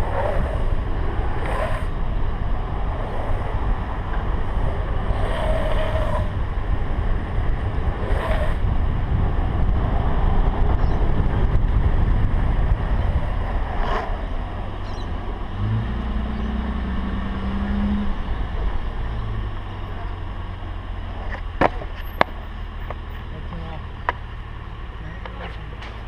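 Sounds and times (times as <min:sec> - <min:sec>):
wind buffeting: 0:00.0 - 0:19.8
engine hum: 0:00.0 - 0:26.0
low road rumble: 0:00.0 - 0:26.0.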